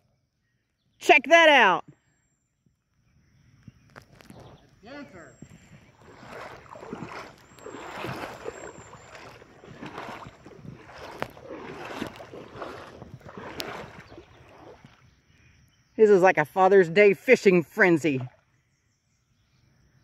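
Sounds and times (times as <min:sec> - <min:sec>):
water sloshing from wading: 0:03.8 - 0:18.6.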